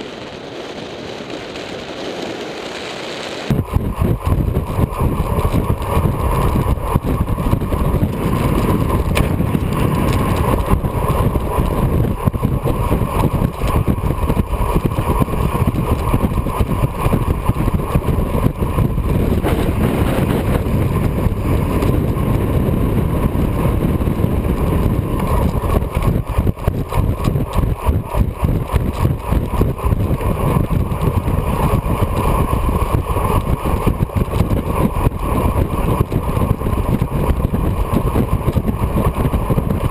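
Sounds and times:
bicycle tyres rolling on road: 0.0 - 39.9
wind buffeting microphone: 0.0 - 39.9.

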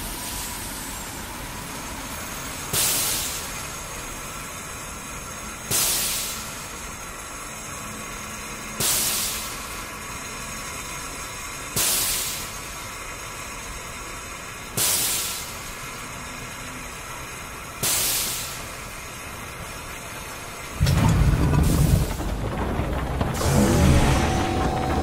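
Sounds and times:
steam hissing: 0.0 - 7.4, 8.6 - 16.2, 17.5 - 20.8
loud low rumble: 20.8 - 25.0.

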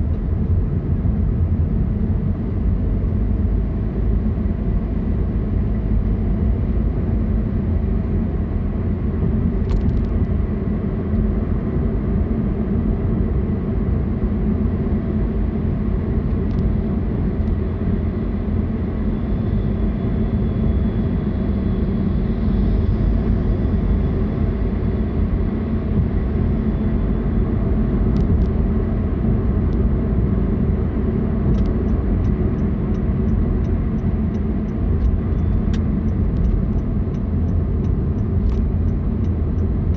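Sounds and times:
car road and engine rumble: 0.0 - 39.9
light ticks: 31.5 - 39.9.

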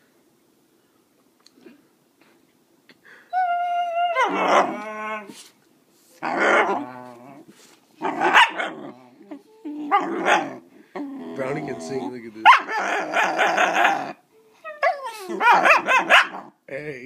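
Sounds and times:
puppy whining: 3.3 - 5.4, 6.2 - 16.5
puppy barking and howling: 3.4 - 5.3, 6.2 - 7.2, 8.0 - 11.8, 12.4 - 16.5.

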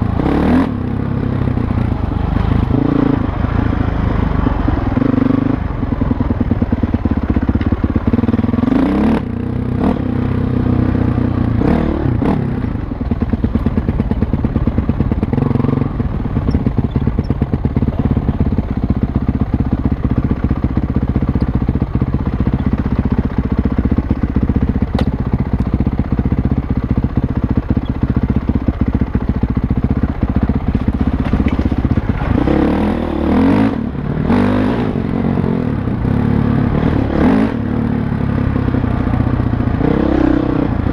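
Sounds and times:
dirt bike engine revving: 0.0 - 4.0, 8.2 - 12.9, 31.2 - 38.8, 39.7 - 40.9.

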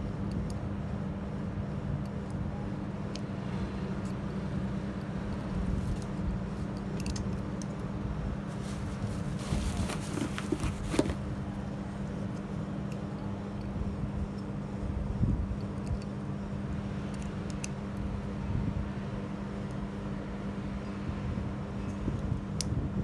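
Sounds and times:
low hum and rumble: 0.0 - 23.0
metal faders clicking and rattling: 5.3 - 7.9.

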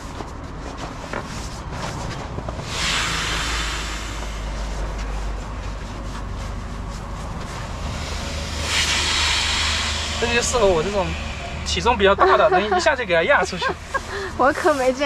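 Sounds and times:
air hissing out of a mattress valve: 2.6 - 5.3, 7.6 - 14.4.

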